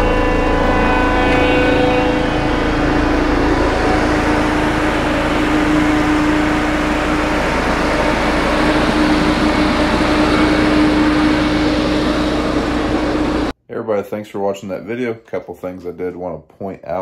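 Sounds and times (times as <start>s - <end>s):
soil compactor diesel engine: 0.0s - 13.5s.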